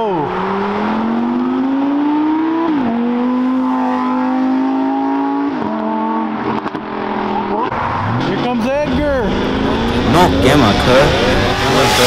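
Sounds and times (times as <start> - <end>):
sports car engine accelerating: 0.0 - 12.0.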